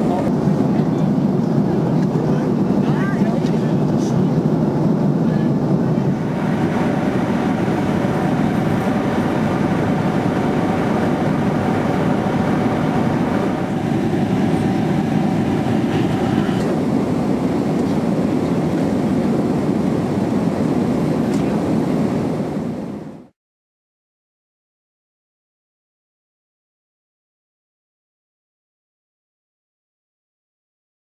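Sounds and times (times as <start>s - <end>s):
airplane cabin engine and airflow noise: 0.0s - 23.4s.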